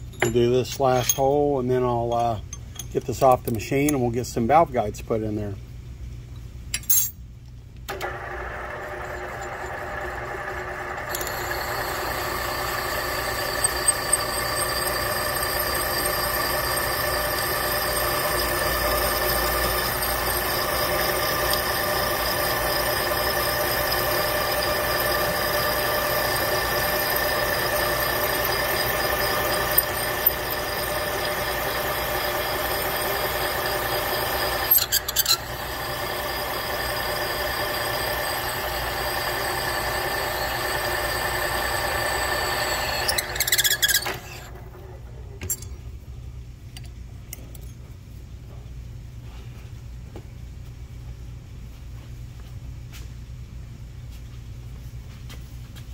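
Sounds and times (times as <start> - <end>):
reamer cutting metal whine: 8.0 - 44.8.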